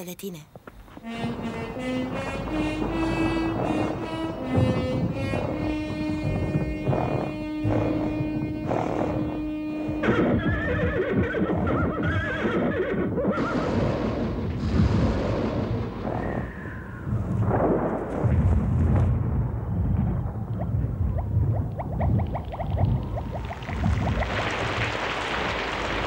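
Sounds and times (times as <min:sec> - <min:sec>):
wind gusts: 0:00.5 - 0:26.0
horse whinnying: 0:02.5 - 0:13.6.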